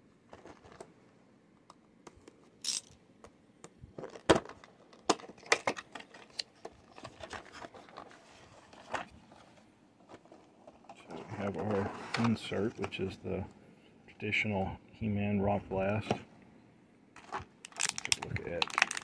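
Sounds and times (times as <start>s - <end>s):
plastic and card crinkling: 4.0s - 13.1s, 17.2s - 19.0s.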